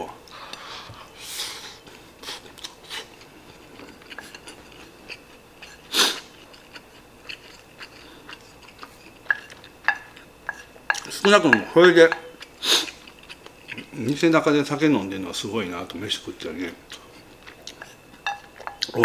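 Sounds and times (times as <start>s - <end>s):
person chewing: 1.8s - 14.2s, 16.8s - 19.0s.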